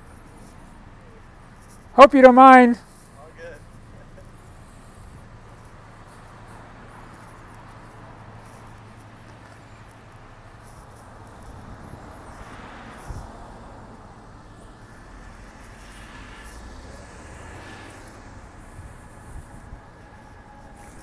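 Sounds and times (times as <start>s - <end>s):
cars driving past: 0.0s - 21.0s.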